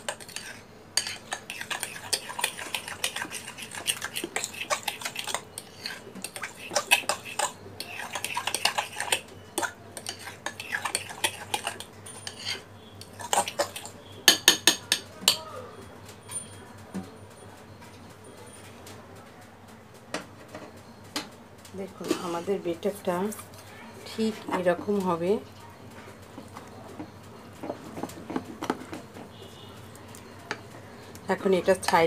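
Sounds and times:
spoon stirring batter in bowl: 0:00.0 - 0:15.4, 0:21.9 - 0:32.0.

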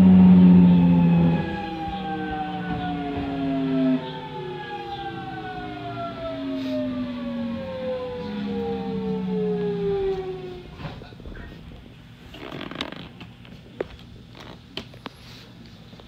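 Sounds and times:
electric train motor whine: 0:00.0 - 0:11.3.

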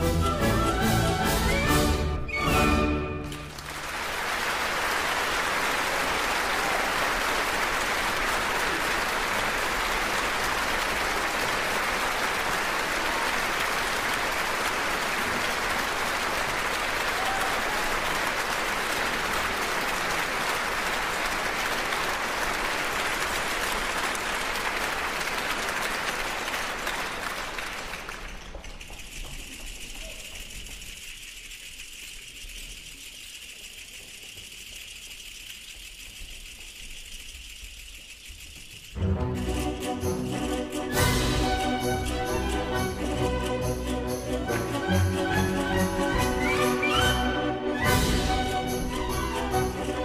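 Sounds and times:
audience applauding: 0:00.0 - 0:31.5, 0:40.2 - 0:50.0.

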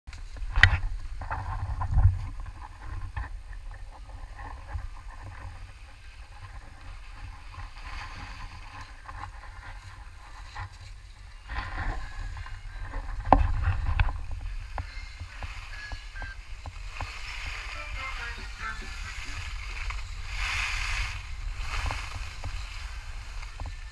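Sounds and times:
skis scraping over snow: 0:00.2 - 0:23.9
wind buffeting microphone: 0:00.2 - 0:23.9.

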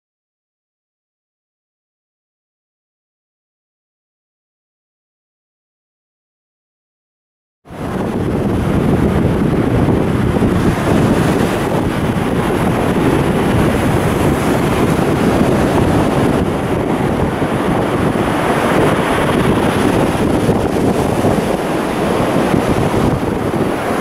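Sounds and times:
wind blowing across microphone: 0:07.7 - 0:24.0.

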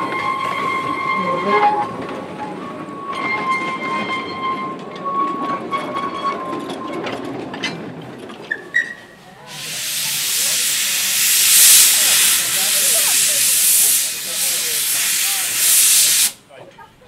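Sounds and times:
train rumbling past: 0:00.0 - 0:16.4
loud steam hiss: 0:09.5 - 0:16.4.

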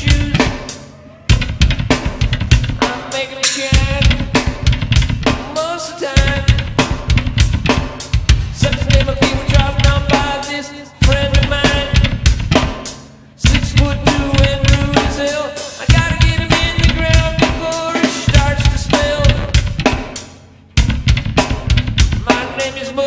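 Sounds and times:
rock music with heavy drums: 0:00.0 - 0:23.0.

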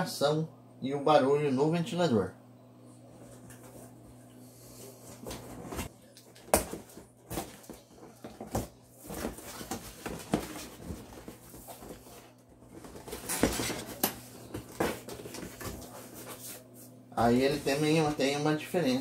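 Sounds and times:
cardboard flap rustling: 0:05.2 - 0:16.6.

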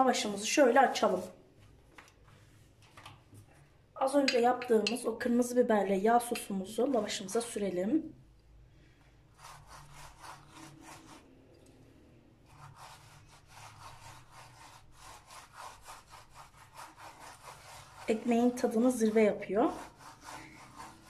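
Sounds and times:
pastry brush swishing: 0:00.1 - 0:01.4, 0:09.3 - 0:11.6, 0:12.4 - 0:21.0.

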